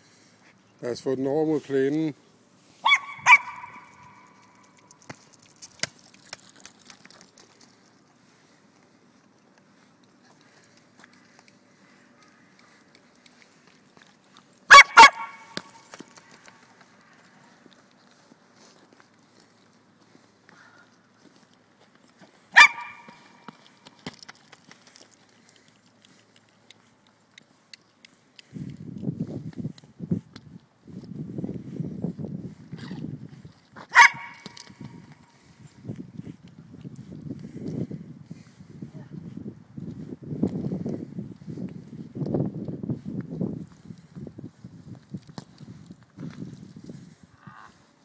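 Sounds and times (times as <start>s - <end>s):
dog barking: 2.8s - 4.3s, 14.7s - 15.6s, 22.6s - 23.1s, 33.9s - 34.5s.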